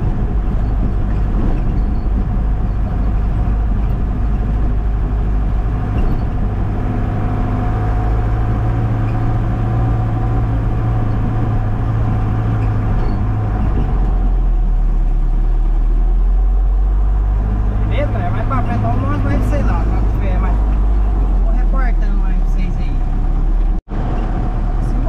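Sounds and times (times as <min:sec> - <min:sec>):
truck engine running: 0:00.0 - 0:25.0.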